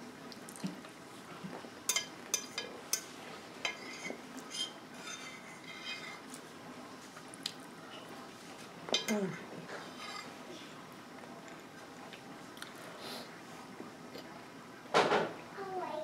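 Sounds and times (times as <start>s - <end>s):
fork clinking and scraping on plate: 1.9s - 6.2s, 8.9s - 10.4s.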